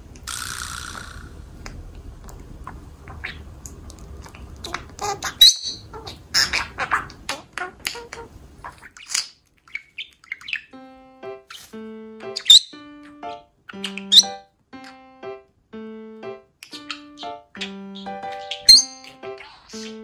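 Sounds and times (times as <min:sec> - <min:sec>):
budgerigar chattering and warbling: 0:04.4 - 0:10.7, 0:12.3 - 0:14.4, 0:16.6 - 0:20.0
music with sustained notes: 0:10.7 - 0:20.0.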